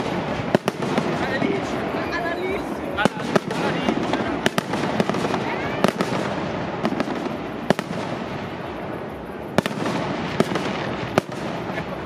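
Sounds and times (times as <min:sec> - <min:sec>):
firework crackle: 0:00.0 - 0:12.0
firework shell bursts: 0:00.0 - 0:12.0.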